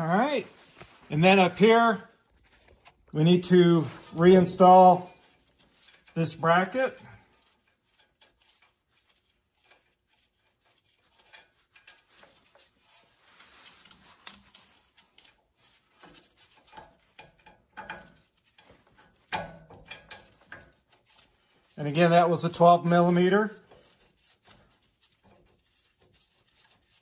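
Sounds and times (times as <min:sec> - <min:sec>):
metallic clicks of bracket and bolt: 0:16.6 - 0:20.8.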